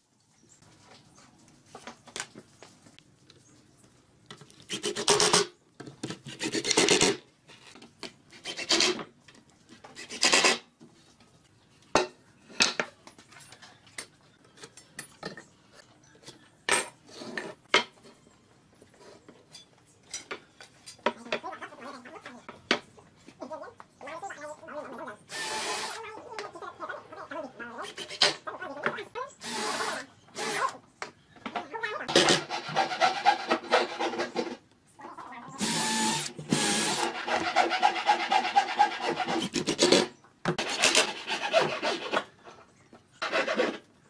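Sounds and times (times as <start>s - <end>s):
hand rasping on wood: 36.6s - 42.2s.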